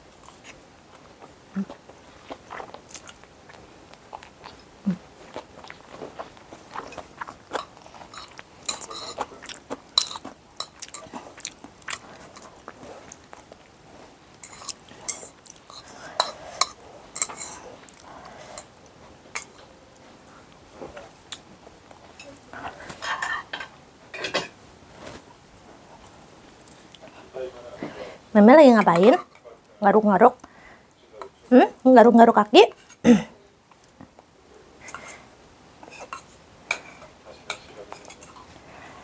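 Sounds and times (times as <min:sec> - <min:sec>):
chewing: 0:00.2 - 0:23.5.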